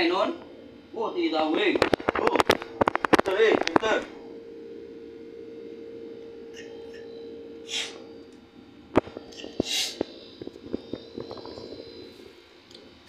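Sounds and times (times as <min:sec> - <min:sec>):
steady hum: 0:00.0 - 0:13.0
hissing puffs of breath: 0:07.7 - 0:08.0, 0:09.6 - 0:10.0.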